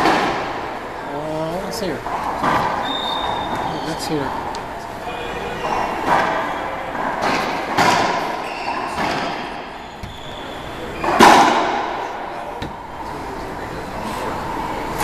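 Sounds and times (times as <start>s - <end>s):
racquetball hits echoing: 0.0s - 0.8s, 2.0s - 3.8s, 5.4s - 13.4s.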